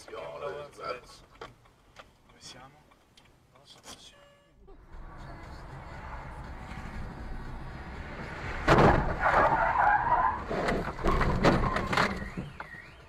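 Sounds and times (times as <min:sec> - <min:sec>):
car driving noise: 0:04.8 - 0:13.0
skidding and scraping: 0:04.9 - 0:13.0
loud crash impact: 0:08.6 - 0:09.4
car alarm wailing: 0:11.1 - 0:13.0.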